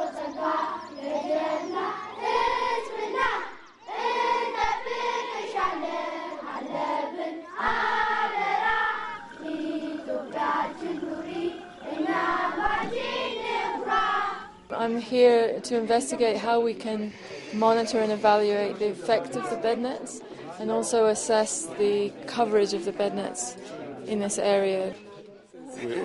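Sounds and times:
children singing: 0:00.0 - 0:14.8.

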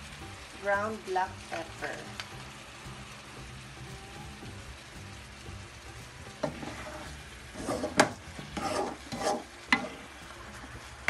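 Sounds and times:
chicken sizzling in a pan: 0:00.0 - 0:11.0
wooden spoon scraping a pan: 0:06.4 - 0:10.6.

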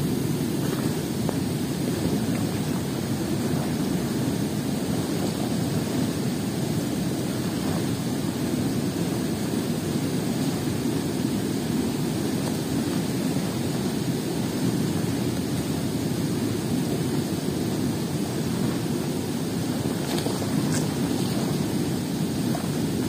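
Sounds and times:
river water rushing: 0:00.0 - 0:23.0.

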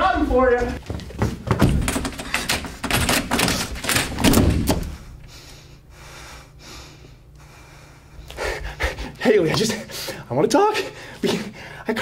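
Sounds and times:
thumps and knocks: 0:00.8 - 0:05.0.

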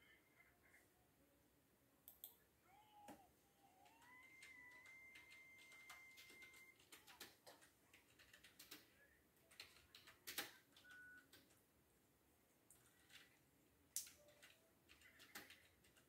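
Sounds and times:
faint steady high tone: 0:02.1 - 0:07.0, 0:10.6 - 0:11.4.

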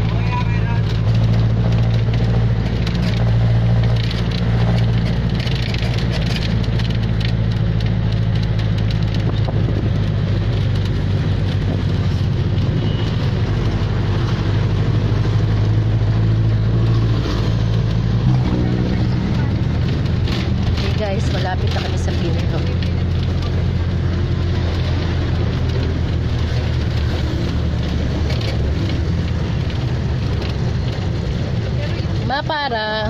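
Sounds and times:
small rattles: 0:00.0 - 0:14.6
diesel engine droning: 0:00.0 - 0:33.0
road noise: 0:00.0 - 0:33.0.

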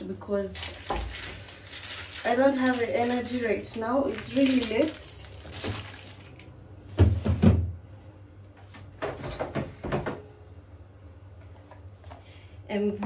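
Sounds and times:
heavy thuds in refrigerator: 0:06.9 - 0:07.8.

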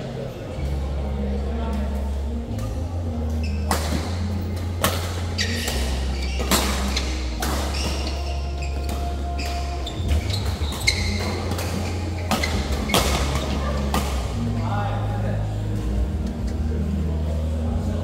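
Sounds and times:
shoes squeaking on court: 0:03.2 - 0:14.4
rackets hitting shuttlecock: 0:03.6 - 0:14.4.

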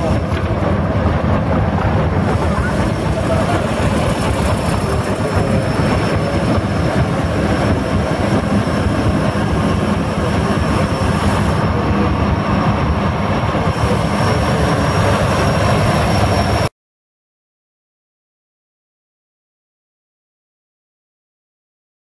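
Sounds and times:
tractor diesel engine running: 0:00.0 - 0:16.6.

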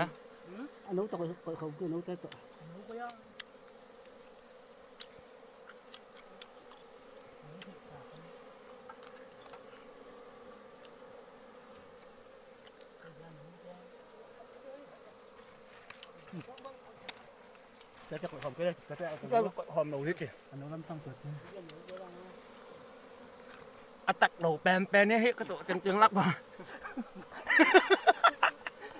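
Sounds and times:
bees buzzing: 0:00.0 - 0:28.9.

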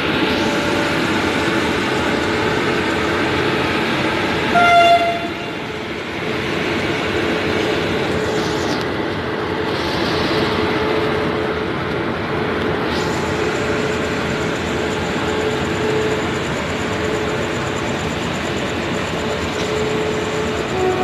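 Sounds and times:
train wheels on rails: 0:00.0 - 0:21.0
locomotive horn toot: 0:04.5 - 0:05.6, 0:20.7 - 0:21.0.

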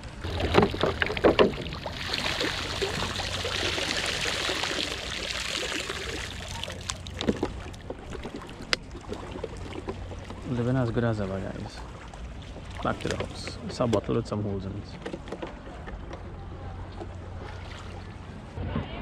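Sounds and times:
seawater splashing: 0:00.0 - 0:18.6
water pouring from a bottle: 0:00.2 - 0:10.7.

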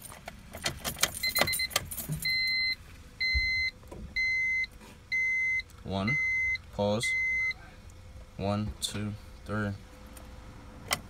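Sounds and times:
keys jangling in ignition: 0:00.0 - 0:02.6
dashboard warning chime beeping: 0:01.0 - 0:07.6.

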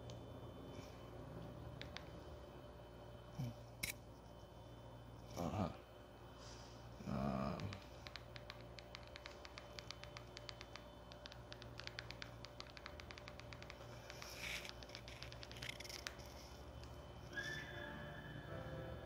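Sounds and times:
electrical hum: 0:00.0 - 0:19.0
light rapid clicking: 0:07.4 - 0:16.9.

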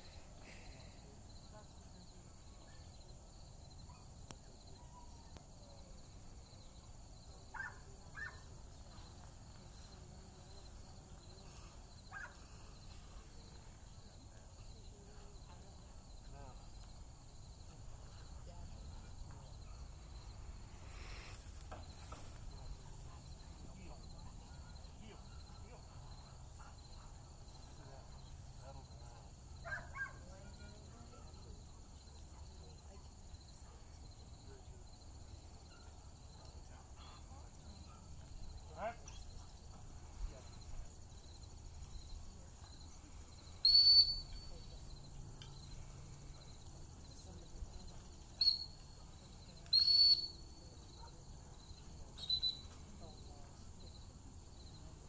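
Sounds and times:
insects chirping: 0:00.0 - 0:55.0
sharp high whistle blast: 0:43.7 - 0:44.4.

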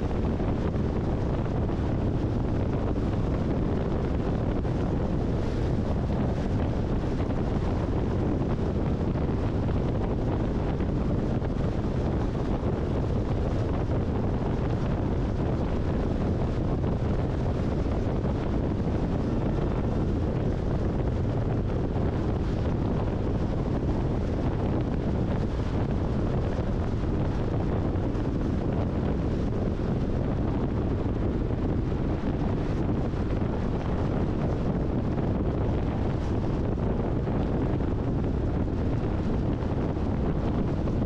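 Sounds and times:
wind and road noise in car: 0:00.0 - 0:41.0.

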